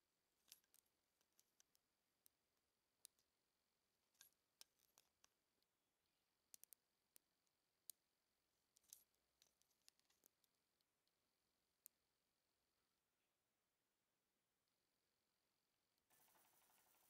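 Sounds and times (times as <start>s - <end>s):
small metallic clicks and taps: 0.4s - 2.4s, 4.1s - 5.7s, 6.4s - 8.0s, 8.7s - 11.2s.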